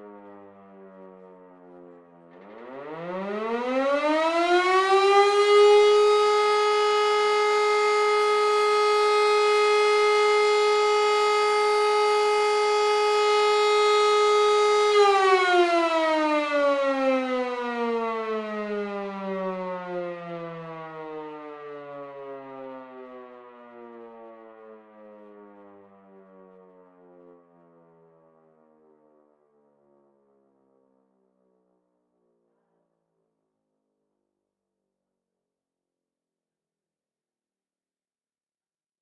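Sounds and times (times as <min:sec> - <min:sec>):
alarm siren wailing: 0:00.0 - 0:28.1.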